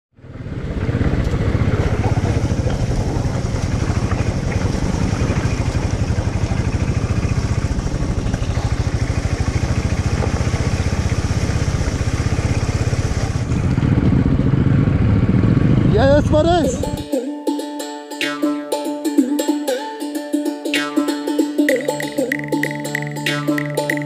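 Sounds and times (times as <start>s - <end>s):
motorcycle engine running: 0.1s - 17.1s.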